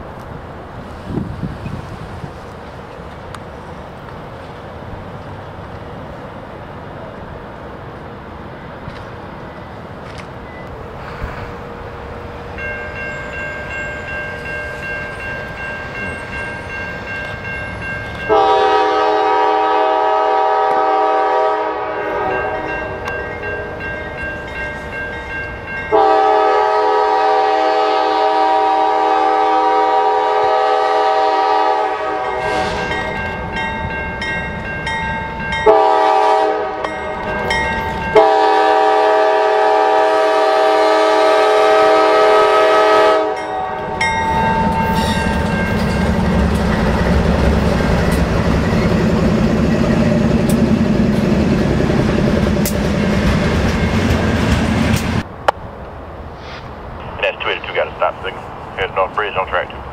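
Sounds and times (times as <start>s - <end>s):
freight train rumble: 0.0s - 59.9s
locomotive air horn blasts: 18.3s - 22.7s, 25.9s - 33.0s, 35.6s - 37.0s, 38.1s - 44.0s.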